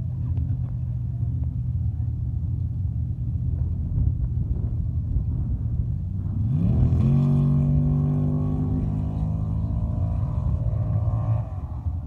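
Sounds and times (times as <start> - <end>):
low rumble: 0.0 - 12.0
truck engine revving: 6.2 - 12.0.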